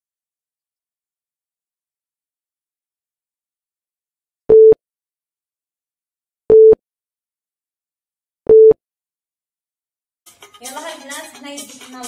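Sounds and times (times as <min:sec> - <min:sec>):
timer beeps: 0:04.5 - 0:04.8, 0:06.5 - 0:06.8, 0:08.5 - 0:08.8.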